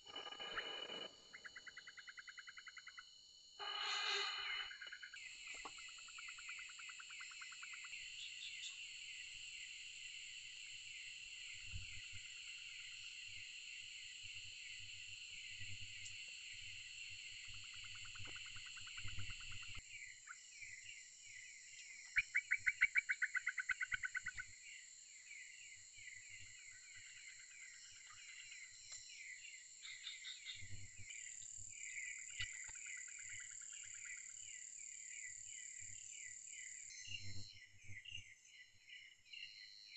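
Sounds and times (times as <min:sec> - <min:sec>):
frogs trilling: 0:00.0 - 0:21.1, 0:22.0 - 0:24.8, 0:25.4 - 0:36.0
insects chirring: 0:00.0 - 0:39.9.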